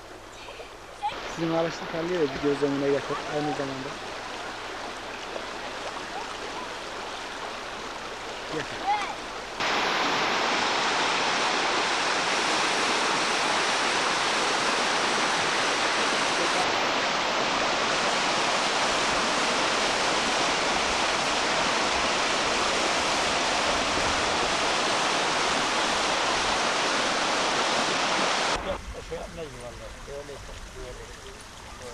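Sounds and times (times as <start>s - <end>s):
river rushing over rocks: 0.4s - 28.8s.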